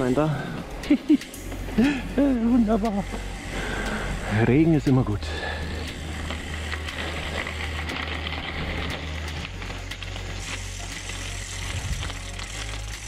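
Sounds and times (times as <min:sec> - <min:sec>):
bike freewheel ticking: 0:00.0 - 0:13.0
bike tyres crunching on gravel: 0:05.4 - 0:13.0.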